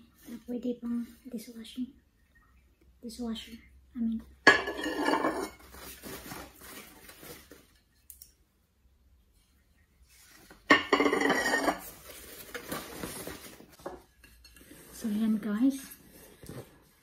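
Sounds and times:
porcelain clinking: 4.5 - 5.6, 10.7 - 11.8
plastic wrapping rustling: 5.2 - 8.0, 11.6 - 13.9.

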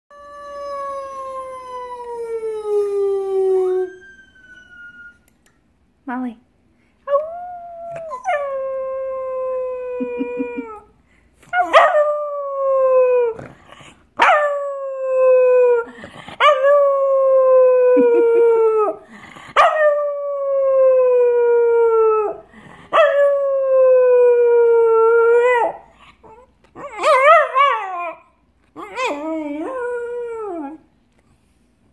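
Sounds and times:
dog howling: 0.1 - 5.3.

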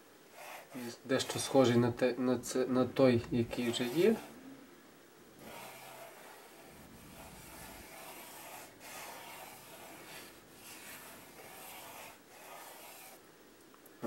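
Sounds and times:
pencil sketching on paper: 0.3 - 1.8, 3.2 - 4.4, 5.4 - 13.2.

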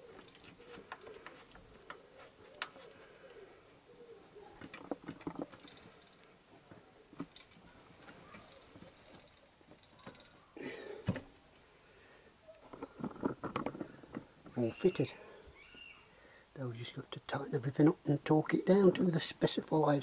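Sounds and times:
metal parts clicking and knocking: 4.6 - 6.3, 7.2 - 10.4.

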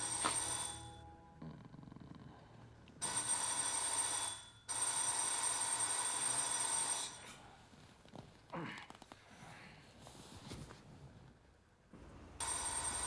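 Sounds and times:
telephone bell ringing: 0.0 - 1.3, 3.0 - 7.3, 12.4 - 13.0.

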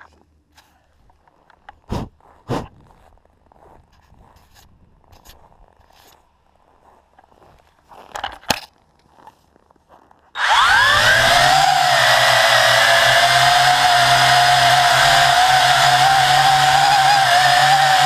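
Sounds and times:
quadcopter motors whining: 10.4 - 18.0.

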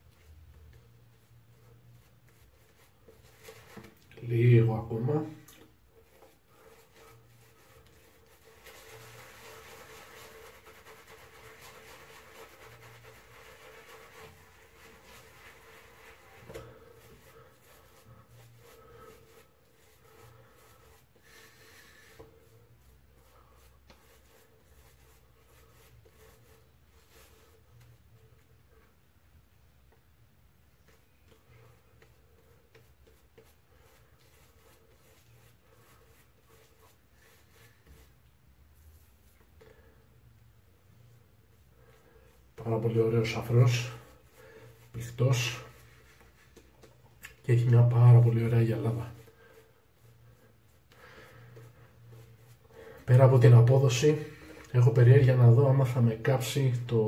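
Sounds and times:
shaving brush swishing on stubble: 0.0 - 28.6, 30.8 - 39.9, 40.8 - 54.5
shaving brush lathering crackle: 6.5 - 21.1.

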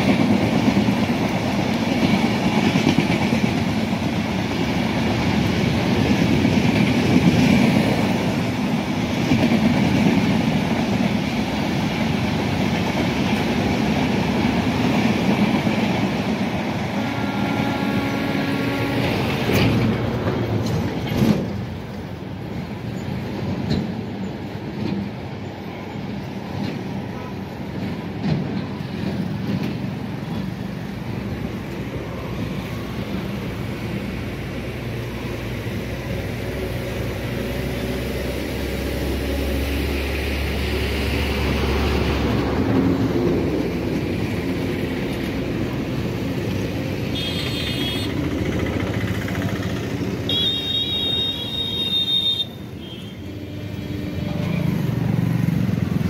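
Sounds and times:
train coaches rumbling over rails: 0.0 - 56.0.

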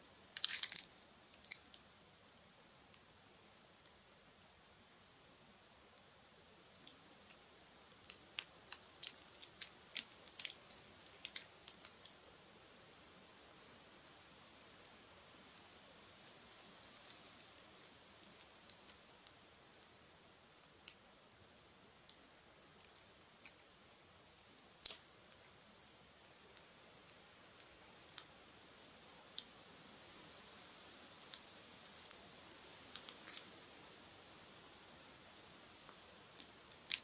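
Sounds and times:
faint fire hiss: 0.0 - 37.0
twigs crackling in fire: 0.3 - 3.0, 6.8 - 12.2, 14.8 - 19.9, 20.6 - 29.5, 30.8 - 33.5, 35.8 - 37.0.

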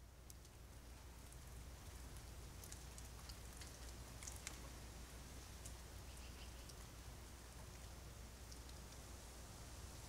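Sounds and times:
low steady hum: 0.0 - 10.0
faint clicks and ticks: 0.2 - 4.8, 7.6 - 9.0.

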